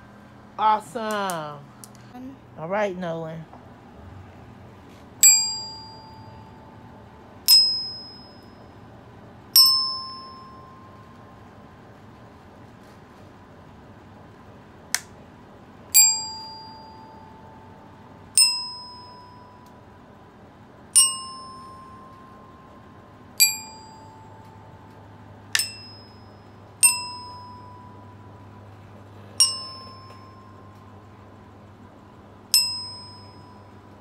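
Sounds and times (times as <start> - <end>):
glockenspiel notes struck with mallet: 21.0 - 22.4, 25.6 - 28.2, 29.4 - 30.7, 32.5 - 33.6.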